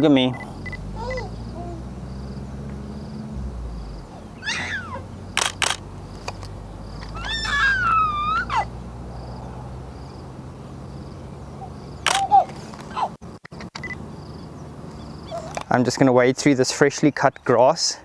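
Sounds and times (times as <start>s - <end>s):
steady low hum: 0.2s - 7.1s
animal calls: 0.4s - 5.8s, 6.9s - 8.8s, 15.0s - 15.6s
sharp clicks: 5.3s - 7.2s, 12.0s - 14.0s.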